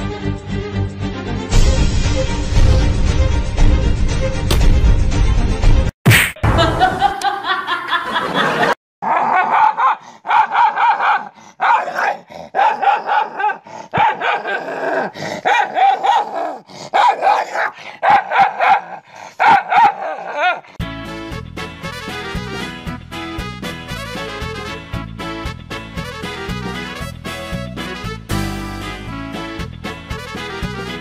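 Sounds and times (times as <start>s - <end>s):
music: 0.0s - 5.9s, 20.8s - 31.0s
small dog barking: 9.0s - 14.7s, 15.4s - 20.6s.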